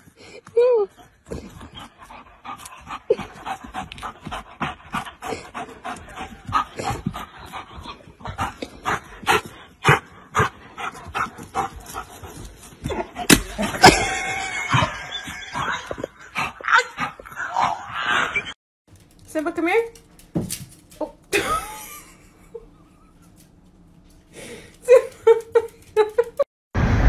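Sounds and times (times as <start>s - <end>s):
dog panting: 0.9s - 13.3s.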